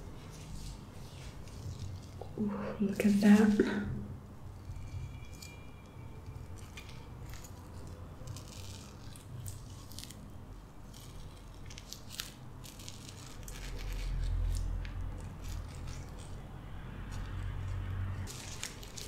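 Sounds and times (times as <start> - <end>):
knife cutting and scraping mango: 4.5 - 19.0.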